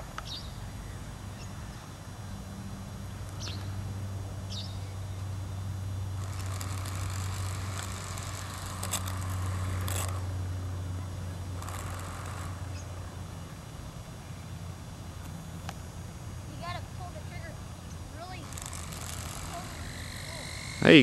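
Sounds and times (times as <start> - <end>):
toy helicopter motor humming: 6.1 - 14.7, 16.5 - 21.0
rotor whirring hiss: 18.1 - 21.0.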